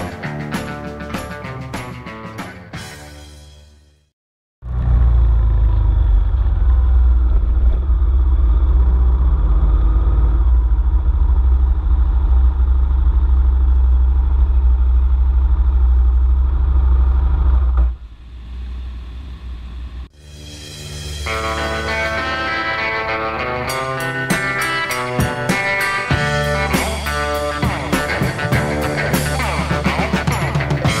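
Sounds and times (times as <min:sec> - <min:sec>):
rock music with guitar: 0:00.0 - 0:03.7, 0:20.4 - 0:31.0
motorcycle engine running: 0:04.6 - 0:20.1.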